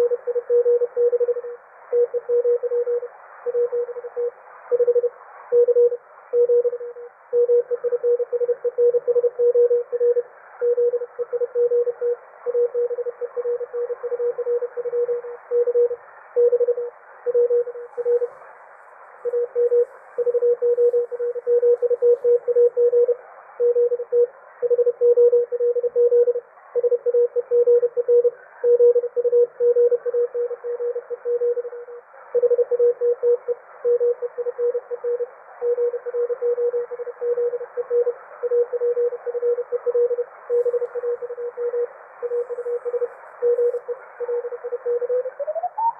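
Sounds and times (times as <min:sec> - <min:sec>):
radio band noise hiss: 0:16.0 - 0:23.6, 0:33.5 - 0:45.9
morse code tone: 0:35.7 - 0:45.9.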